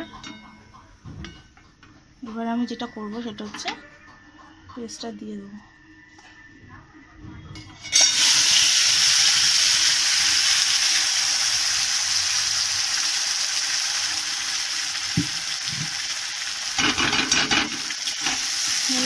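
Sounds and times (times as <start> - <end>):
paste sizzling in hot oil: 8.0 - 19.0.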